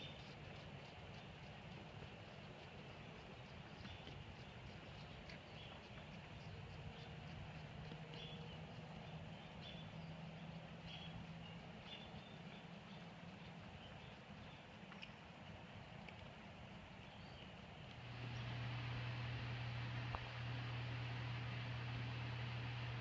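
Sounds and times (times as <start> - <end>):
low hum: 0.0 - 23.0
loud steady low hum: 17.2 - 23.0.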